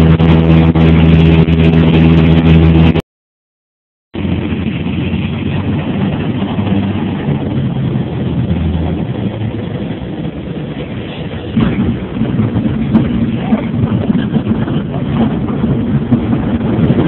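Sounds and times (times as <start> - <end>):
aircraft engine droning: 0.0 - 3.0, 4.2 - 17.0
air rushing past cabin: 4.2 - 17.0.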